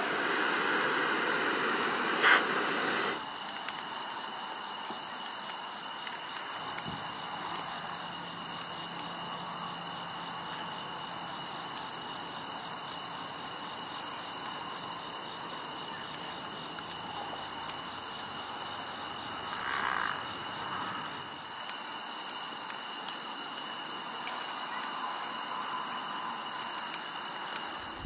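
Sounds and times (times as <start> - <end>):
crickets trilling: 0.0 - 28.0
wood fire crackles: 0.0 - 28.0.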